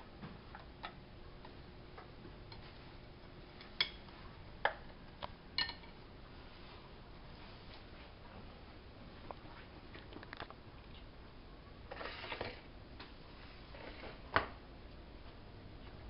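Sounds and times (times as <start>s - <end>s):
kitchenware clicks and clinks: 5.6s - 5.9s.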